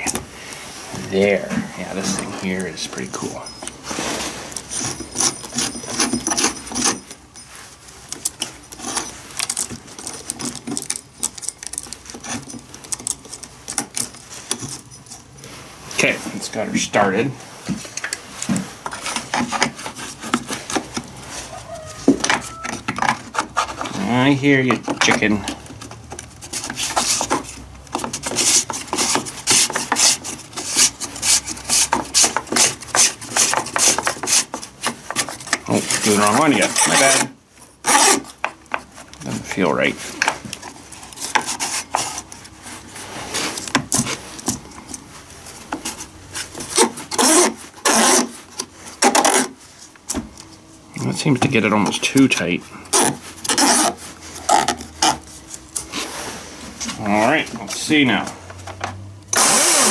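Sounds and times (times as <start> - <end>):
saw chain rattling and clinking: 2.0 - 3.8, 4.6 - 15.4.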